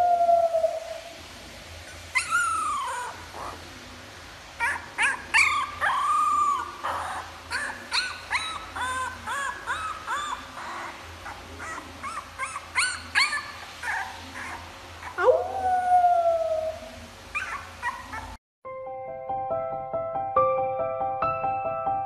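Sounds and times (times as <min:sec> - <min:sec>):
puppy howling: 0:00.0 - 0:01.2, 0:02.2 - 0:03.6, 0:04.6 - 0:18.4
puppy whimpering and yipping: 0:01.9 - 0:03.6, 0:04.6 - 0:15.6, 0:17.3 - 0:18.4.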